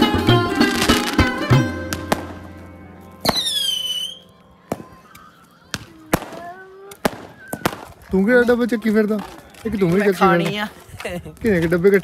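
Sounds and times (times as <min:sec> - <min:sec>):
firework bangs: 0:01.9 - 0:02.6, 0:03.2 - 0:05.1, 0:05.7 - 0:08.2
firework rocket whistling: 0:03.2 - 0:08.0.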